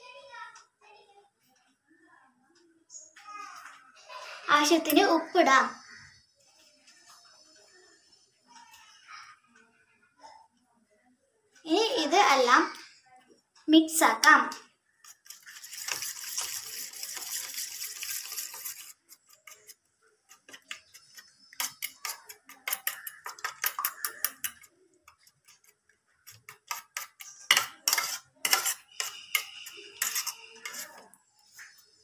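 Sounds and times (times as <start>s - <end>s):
hand mixing in steel bowl: 15.0s - 31.9s.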